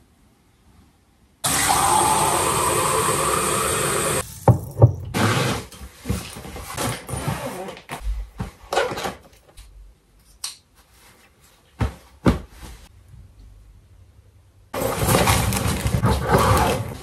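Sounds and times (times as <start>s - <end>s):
clothes shuffling: 10.7s - 12.9s.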